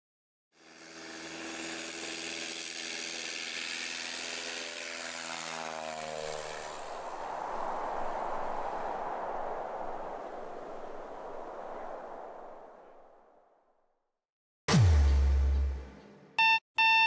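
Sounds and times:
propeller plane flying past: 0.6s - 11.3s
steady rushing noise: 6.0s - 13.4s.

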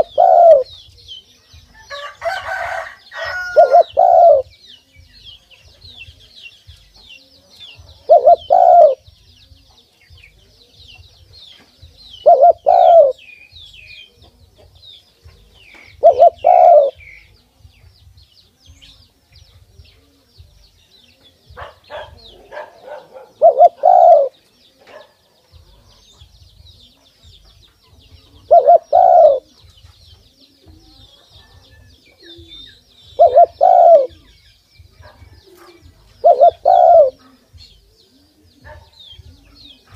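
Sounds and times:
dove cooing: 0.0s - 0.8s, 1.9s - 4.6s, 7.8s - 9.1s, 12.2s - 13.2s, 14.1s - 17.2s, 21.2s - 26.0s, 28.0s - 29.8s, 30.4s - 39.9s
small birds chirping: 0.0s - 39.9s.

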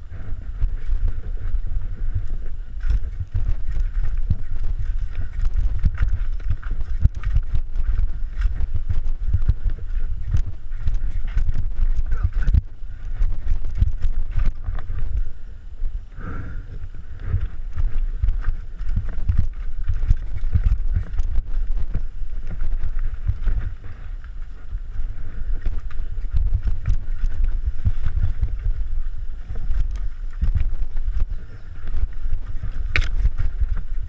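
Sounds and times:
wind buffeting microphone: 0.0s - 34.0s.

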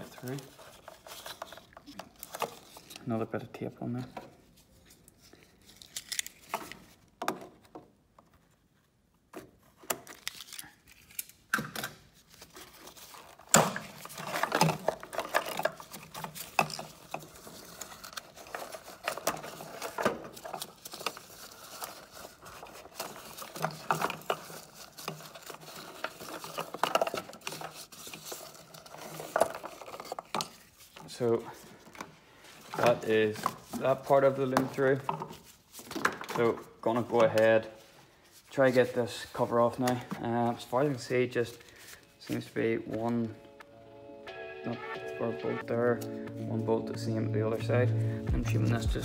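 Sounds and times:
cables rustling and scraping: 0.0s - 7.2s, 12.1s - 43.6s.

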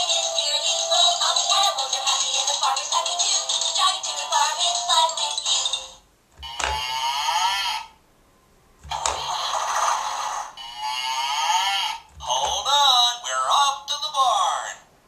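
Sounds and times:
toy electronic sound clips: 6.4s - 7.8s.

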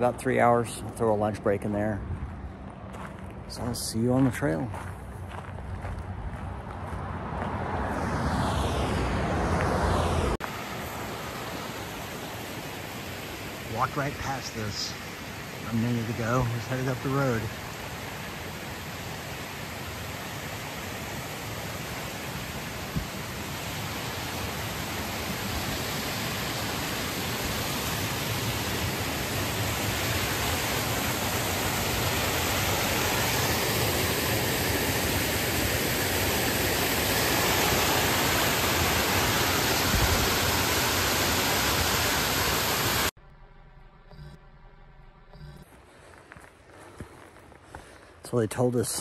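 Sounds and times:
waterfall rushing over rock: 10.4s - 43.1s.

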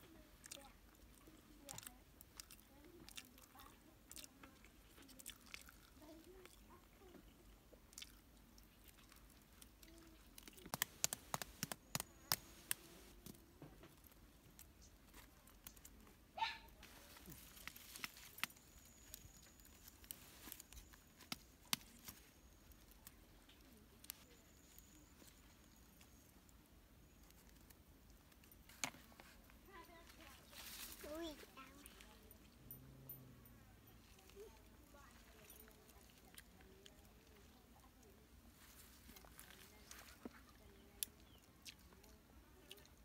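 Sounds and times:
soft chewing: 0.0s - 43.0s
eggshells tapped and cracked: 10.4s - 13.4s
sharp clicks: 10.5s - 12.9s.

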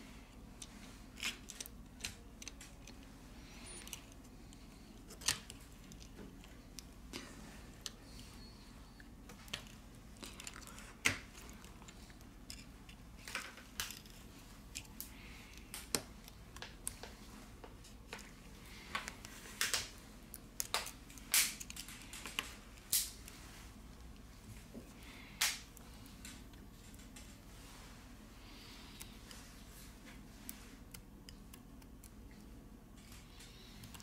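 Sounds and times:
faint steady hum: 0.0s - 34.0s.

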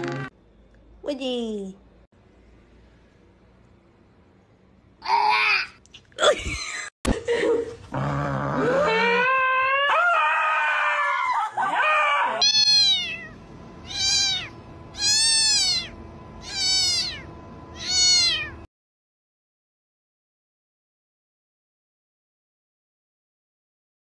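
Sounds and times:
dog whining: 7.9s - 13.3s
cat meowing: 12.4s - 18.7s.

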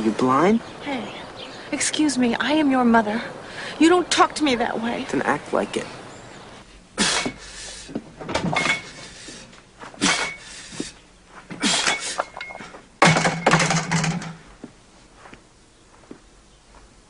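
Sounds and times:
effortful breathing and straining: 6.8s - 12.7s
barbell plates clanking: 8.3s - 9.2s, 11.6s - 14.4s.

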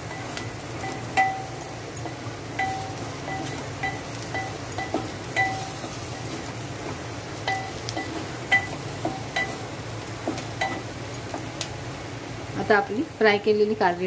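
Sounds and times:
onion sizzling: 0.0s - 14.0s
spatula clinking against metal pot: 0.8s - 6.0s, 7.4s - 9.6s.

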